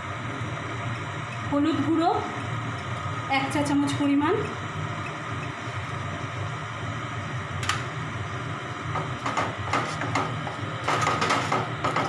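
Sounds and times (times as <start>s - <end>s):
masala frying in a pan: 0.0s - 10.8s
sharp click: 7.6s - 7.9s.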